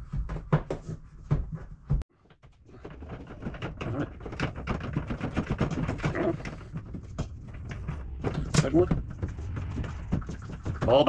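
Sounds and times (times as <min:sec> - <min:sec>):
small clicks and rattles: 0:02.2 - 0:11.0.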